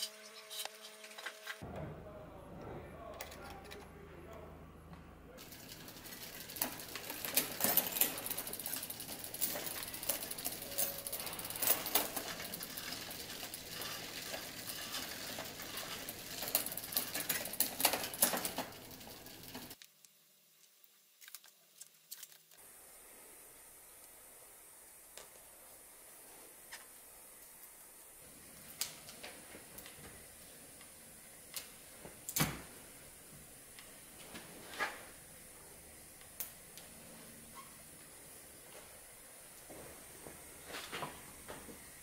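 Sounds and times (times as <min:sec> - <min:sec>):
bike chain ticking: 0:05.4 - 0:19.8
wrench working on bike: 0:05.4 - 0:19.8.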